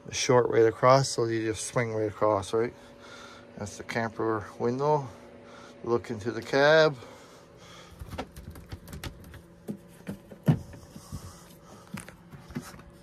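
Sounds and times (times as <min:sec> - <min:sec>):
faint steady hum: 0:00.0 - 0:13.0
light knocks and thumps: 0:08.0 - 0:12.9.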